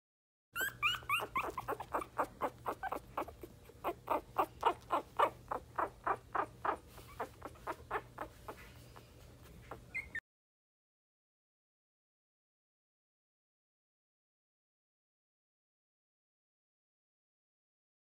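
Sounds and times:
puppy crying in high squeaks: 0.6 - 8.4, 9.6 - 10.2.

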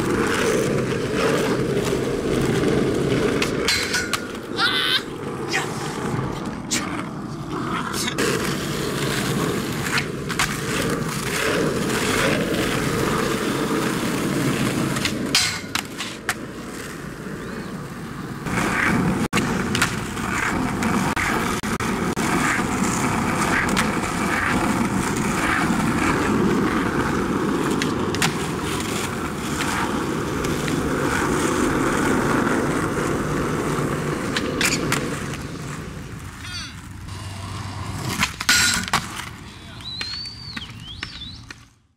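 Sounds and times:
skateboard clacks: 0.0 - 41.8
skateboard wheels rolling on asphalt: 0.0 - 41.9.

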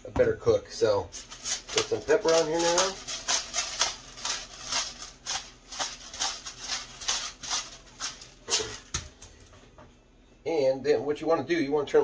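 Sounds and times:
pepper grinder grinding: 1.1 - 9.1.

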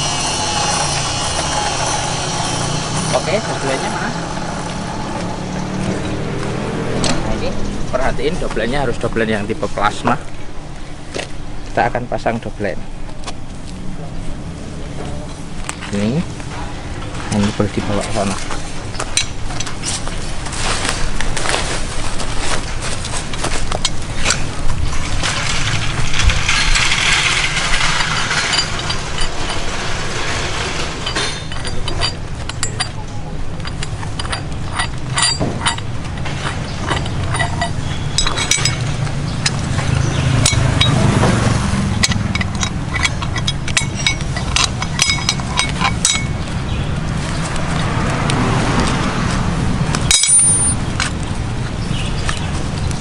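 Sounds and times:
metal shackles clinking: 0.0 - 6.2, 17.4 - 47.8, 49.9 - 51.2.

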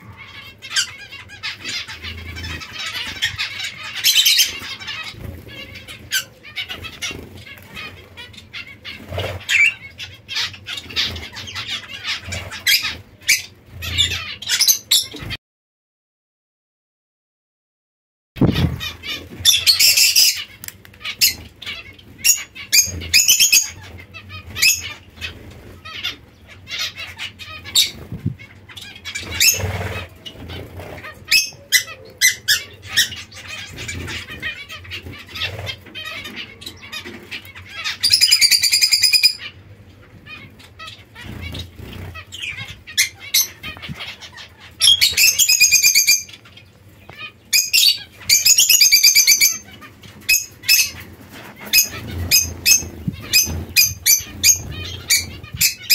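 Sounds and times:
buzzy birdsong: 0.0 - 15.4, 18.4 - 55.9
finches chirping: 18.4 - 39.5, 40.3 - 55.9.

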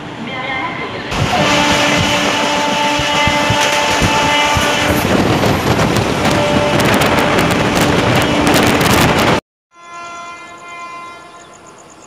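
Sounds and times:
train rumbling and rattling: 0.0 - 9.4
train horn: 1.2 - 5.2, 6.2 - 8.9, 9.7 - 11.6.

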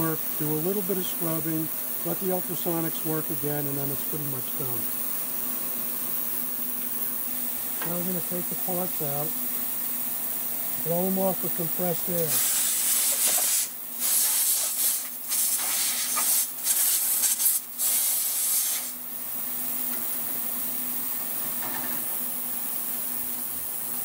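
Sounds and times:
steady low hum: 0.0 - 24.0
compressed air blow gun blasts: 12.3 - 19.0.

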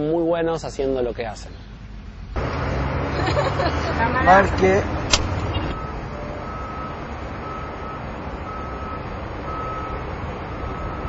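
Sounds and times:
outdoor background noise: 0.0 - 11.0
reversing alarm beeping: 5.7 - 10.0, 10.6 - 11.0.

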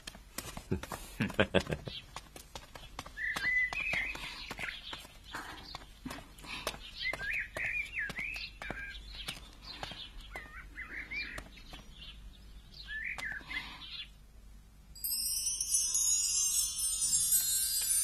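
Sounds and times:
small birds chirping: 0.5 - 14.2
high ringing chimes music: 15.0 - 18.0.

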